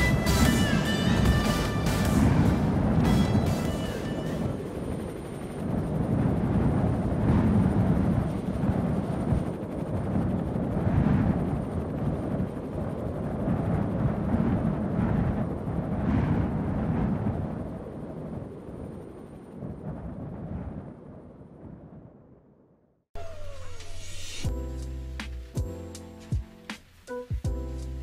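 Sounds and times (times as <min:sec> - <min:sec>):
faint high whine: 0:00.0 - 0:06.0, 0:23.2 - 0:27.4
low dense rumble: 0:00.0 - 0:22.0.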